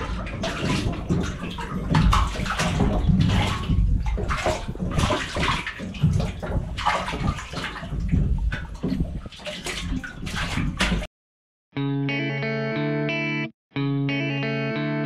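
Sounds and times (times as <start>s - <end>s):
water splashing against boat hull: 0.0s - 11.1s.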